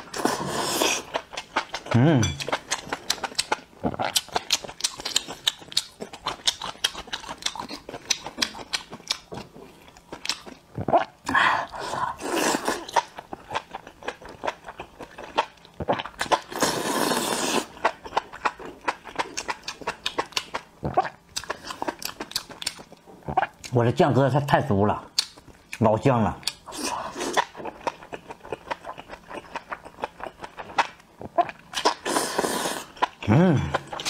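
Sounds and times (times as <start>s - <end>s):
slurping: 0.0s - 1.2s, 16.2s - 17.8s, 31.8s - 34.0s
wet chewing and crunching: 0.0s - 11.2s, 12.2s - 23.9s, 25.1s - 34.0s.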